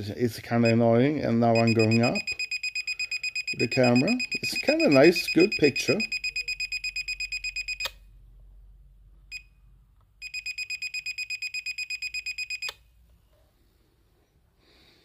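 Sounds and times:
fast high electronic beeping: 0:01.6 - 0:07.9.

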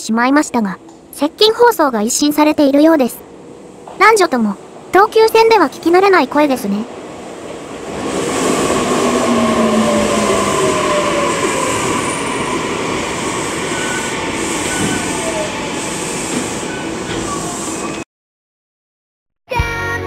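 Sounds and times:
train running and wheel noise: 0:00.0 - 0:18.0
train motor whine falling: 0:08.1 - 0:18.0.

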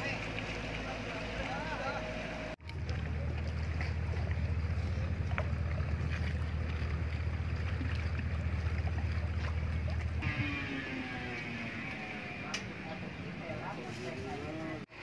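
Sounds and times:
small boat engine throbbing: 0:00.0 - 0:15.0.

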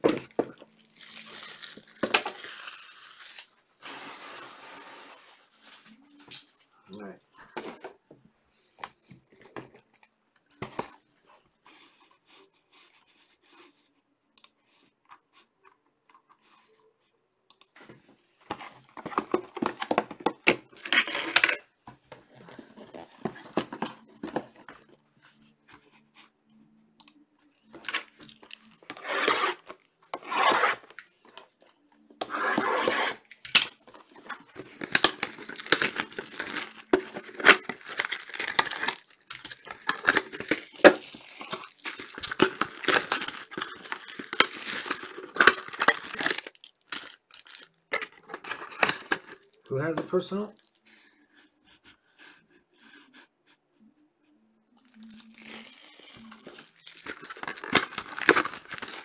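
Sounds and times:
wrapper tearing and crinkling: 0:00.6 - 0:05.2, 0:19.0 - 0:21.6, 0:27.8 - 0:31.0, 0:32.3 - 0:49.5, 0:54.9 - 0:59.0.

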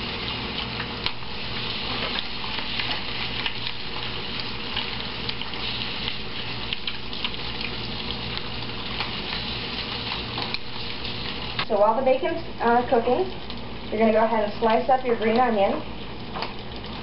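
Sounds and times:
bacon sizzling in a skillet: 0:00.0 - 0:17.0
crackling pops: 0:01.9 - 0:11.8, 0:15.2 - 0:17.0.

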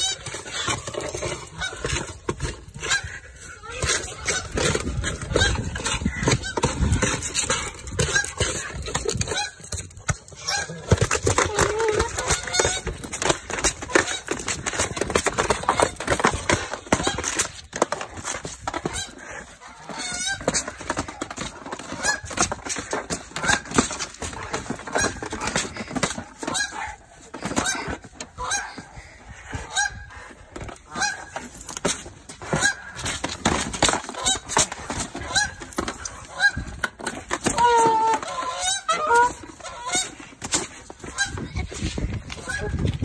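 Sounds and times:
goose honking: 0:18.8 - 0:20.5, 0:37.4 - 0:40.1.

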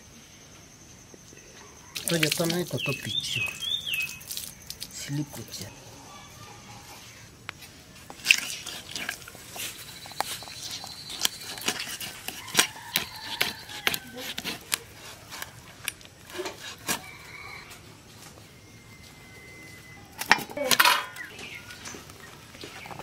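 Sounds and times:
blade cutting through chicken: 0:11.1 - 0:15.5.

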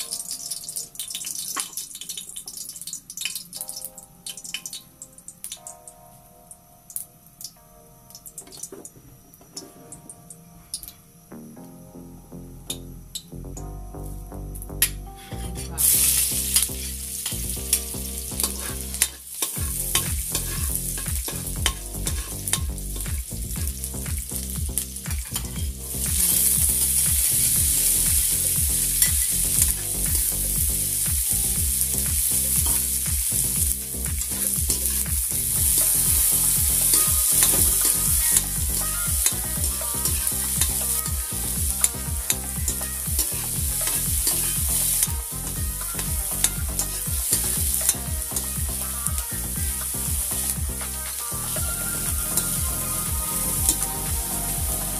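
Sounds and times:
food sizzling in hot oil: 0:00.0 - 0:05.8, 0:15.8 - 0:54.9
metal ladle scraping wok: 0:18.4 - 0:22.6.

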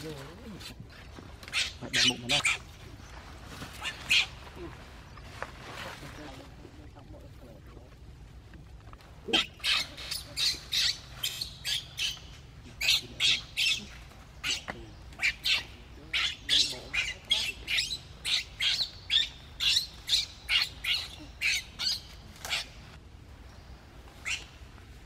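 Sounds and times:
baby monkey screaming: 0:01.5 - 0:02.7, 0:03.8 - 0:04.4, 0:09.3 - 0:22.8, 0:24.2 - 0:24.5.

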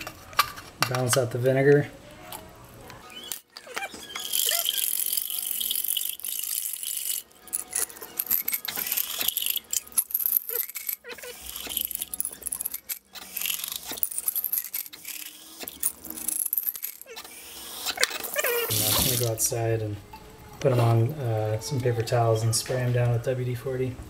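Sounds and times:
metal nuts rattling in glass jar: 0:03.9 - 0:19.3.

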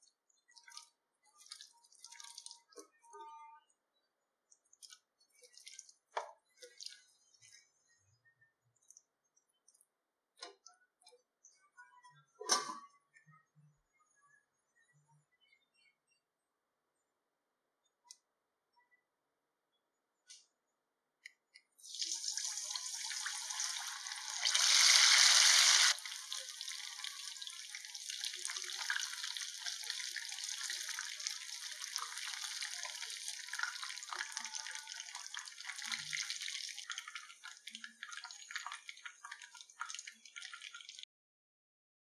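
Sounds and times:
chicken deep-frying in oil: 0:00.0 - 0:02.9, 0:21.8 - 0:41.1.

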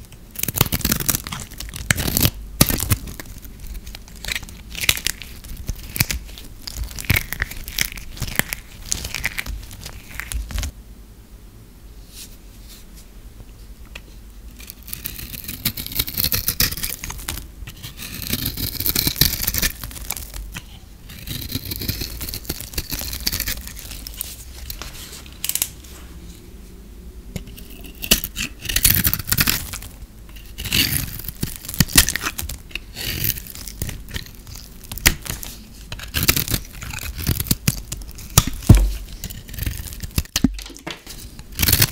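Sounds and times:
bar soap crackling when crushed: 0:00.1 - 0:10.7, 0:14.6 - 0:25.8, 0:27.4 - 0:41.9
knife scraping soap: 0:14.6 - 0:25.6, 0:27.4 - 0:41.9.

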